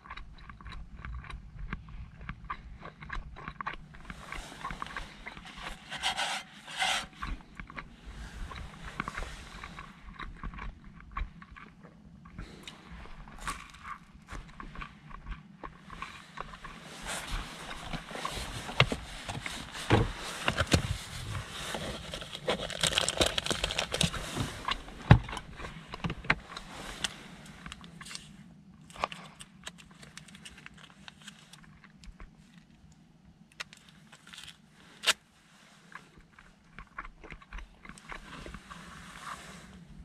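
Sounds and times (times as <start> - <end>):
packaging and clothing rustling: 4.4 - 7.2, 17.0 - 25.8.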